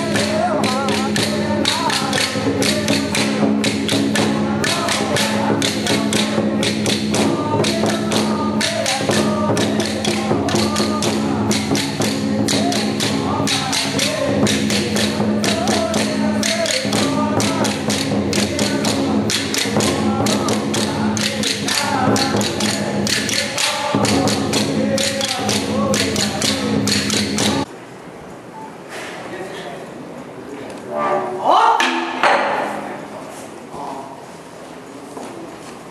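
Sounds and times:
drums and cymbals beating rapidly: 0:00.0 - 0:27.7.

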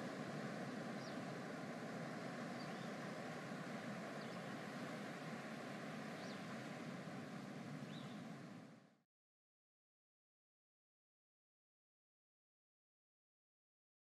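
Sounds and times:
ocean waves washing: 0:00.0 - 0:08.9.

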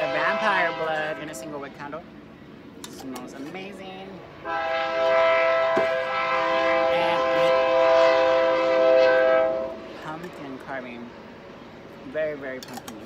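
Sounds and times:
train horn blast: 0:00.0 - 0:01.7, 0:04.4 - 0:10.1.

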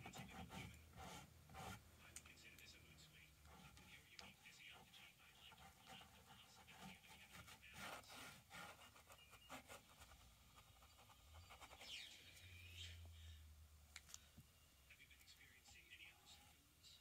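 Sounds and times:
paintbrush scratching on canvas: 0:00.0 - 0:01.8, 0:03.4 - 0:12.1
faint low hum: 0:00.0 - 0:17.0.

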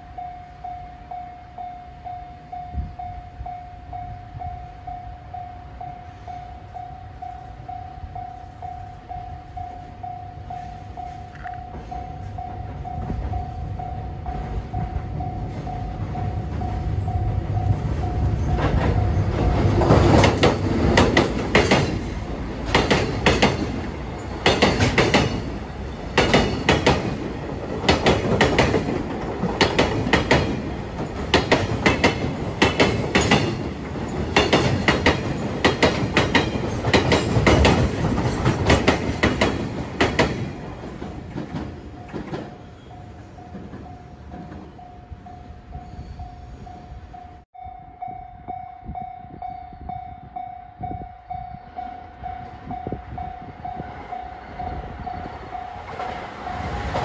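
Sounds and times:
train wheels clicking over rail joints: 0:10.5 - 0:45.0.

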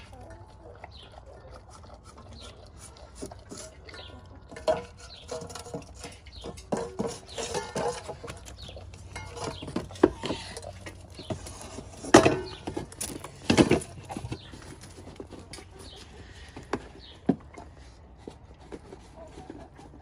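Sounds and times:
dog chewing and lapping: 0:00.0 - 0:12.1.

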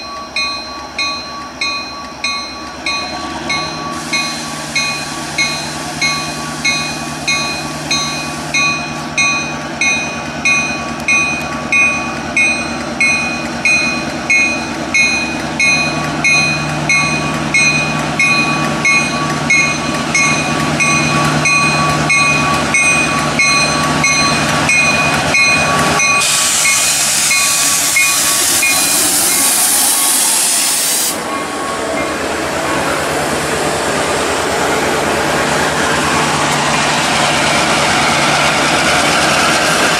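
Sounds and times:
diesel engine drone: 0:00.0 - 0:39.9
train bell ringing: 0:00.0 - 0:39.9
loud hiss: 0:03.8 - 0:08.6, 0:26.1 - 0:31.3.

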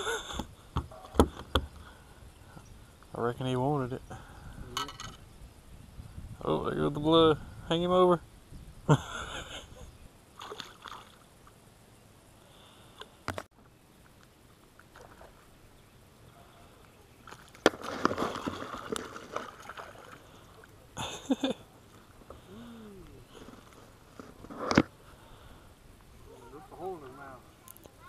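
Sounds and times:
water sloshing and splashing: 0:10.4 - 0:11.3, 0:17.2 - 0:20.9.

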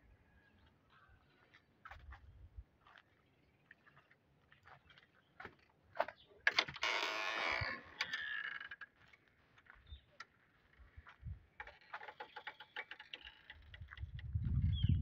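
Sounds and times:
clicks and footsteps: 0:03.7 - 0:14.6
wooden gate scraping open: 0:06.4 - 0:08.9.

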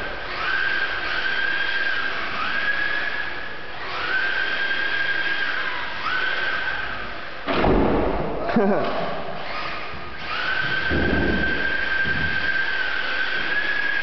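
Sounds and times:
electric motor whining: 0:00.0 - 0:07.5, 0:09.4 - 0:14.0
sudden loud knock: 0:07.5 - 0:08.4, 0:10.9 - 0:12.3.

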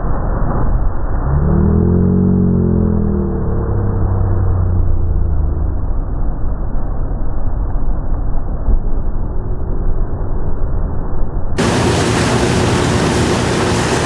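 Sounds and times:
boat engine drone: 0:00.0 - 0:14.0
wind: 0:00.0 - 0:14.0
churning wake water: 0:11.6 - 0:14.0.

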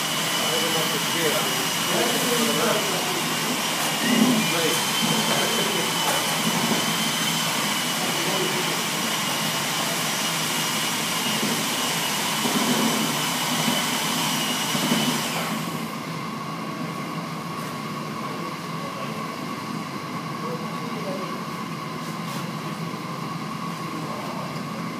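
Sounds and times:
machine whirring hiss: 0:00.0 - 0:15.9.

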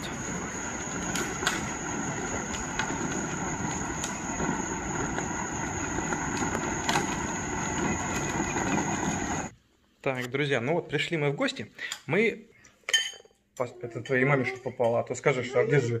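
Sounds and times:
plastic wheels rumbling on road: 0:00.0 - 0:09.5.

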